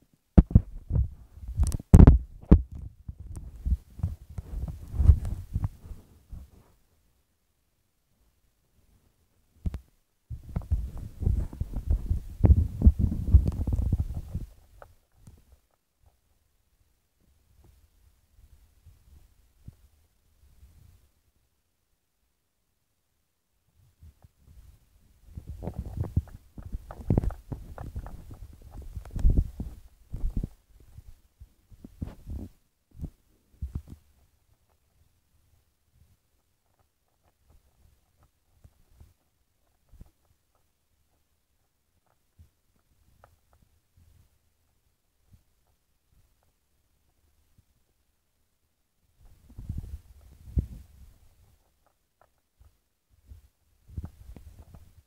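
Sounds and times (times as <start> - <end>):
dull low thumps and knocks: 0.4 - 6.6, 10.3 - 14.5.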